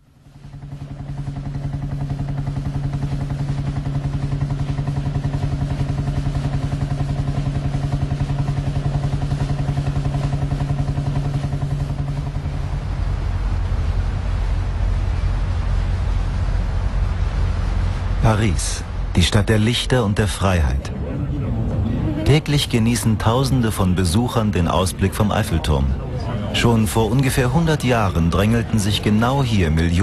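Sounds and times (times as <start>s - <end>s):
deep rumble: 0.0s - 30.0s
engine running steadily: 0.0s - 30.0s.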